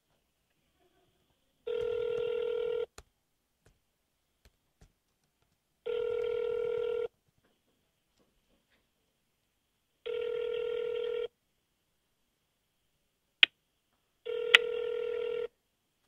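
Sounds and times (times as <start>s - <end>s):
telephone ringback tone: 1.7s - 2.9s, 5.9s - 7.1s, 10.1s - 11.3s, 14.3s - 15.5s.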